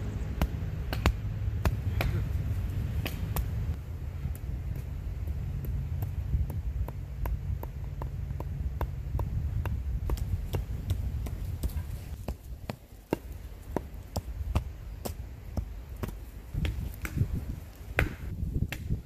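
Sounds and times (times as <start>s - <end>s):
hatchet chopping wood: 0.4s - 2.4s, 3.0s - 3.6s, 4.2s - 19.0s.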